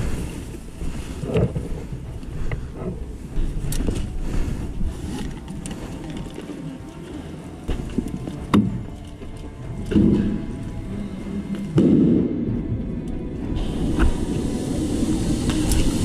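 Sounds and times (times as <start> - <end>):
gear clicks and knocks: 0.0 - 10.9
background music: 0.0 - 16.0
footsteps: 0.0 - 16.0.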